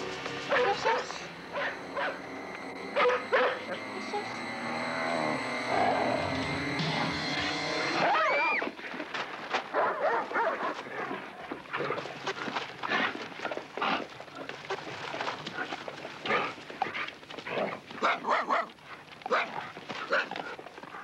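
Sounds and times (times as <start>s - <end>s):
dogs barking and snarling: 0.1s - 8.7s, 9.6s - 21.0s
dog yelps: 3.0s - 3.6s, 8.0s - 8.6s, 9.8s - 10.7s, 18.0s - 20.4s.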